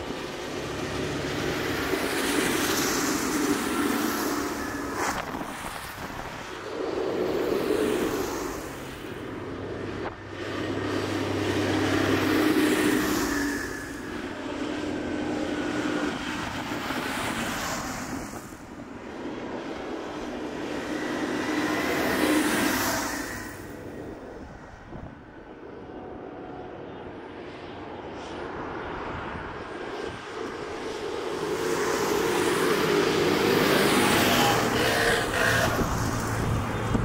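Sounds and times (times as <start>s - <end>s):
tractor diesel engines: 0.0s - 37.0s
tyres hissing on wet road: 2.4s - 9.2s.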